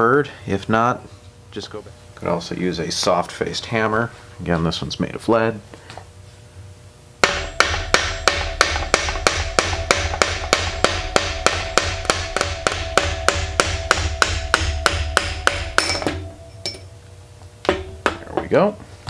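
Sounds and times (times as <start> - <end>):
hammer striking steel shaft: 7.2 - 16.9, 17.6 - 18.5
steel ringing: 7.2 - 17.0.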